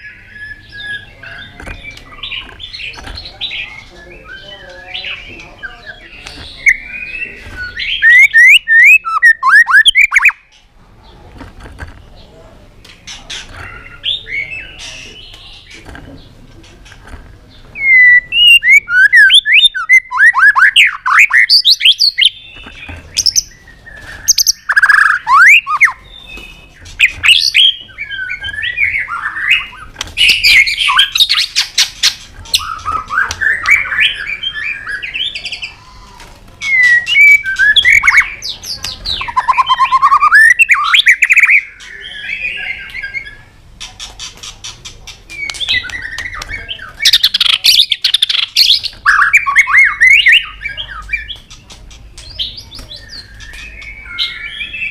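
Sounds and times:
bird singing whistled phrases: 0:06.6 - 0:10.4, 0:17.8 - 0:22.5, 0:23.2 - 0:31.6, 0:36.6 - 0:38.4, 0:39.1 - 0:43.5, 0:45.4 - 0:51.5, 0:52.3 - 0:54.9
sharp bird clicking notes: 0:43.8 - 0:48.9.

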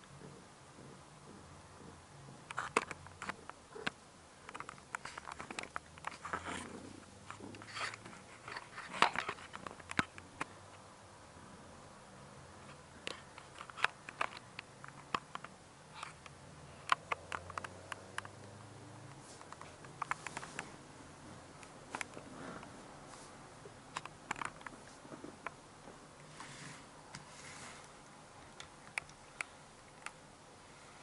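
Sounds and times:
soft clicks: 0:27.1 - 0:30.2.

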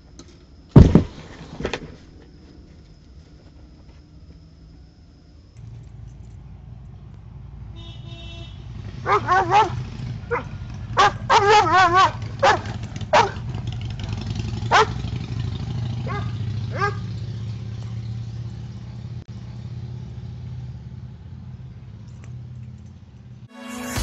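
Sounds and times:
dog barking and yelping: 0:09.0 - 0:13.4, 0:14.7 - 0:15.0, 0:16.0 - 0:17.1.

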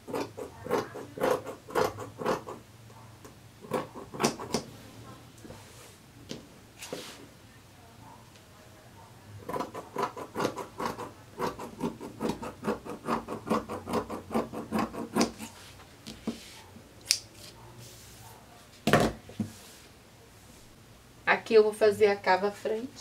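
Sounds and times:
scissors snipping fabric: 0:00.0 - 0:02.6, 0:03.7 - 0:04.7, 0:09.4 - 0:15.5.

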